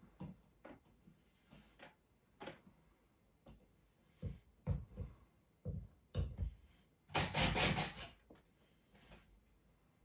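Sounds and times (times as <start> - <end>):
cordless drill boring into ceiling: 7.1 - 8.2.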